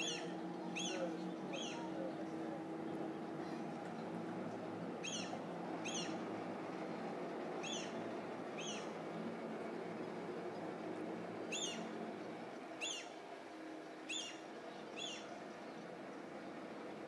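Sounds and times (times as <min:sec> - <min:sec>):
bird calling: 0:00.0 - 0:02.2, 0:05.0 - 0:06.3, 0:07.6 - 0:09.0, 0:11.5 - 0:12.0, 0:12.8 - 0:13.2, 0:14.1 - 0:15.4
low background hum: 0:00.0 - 0:17.0.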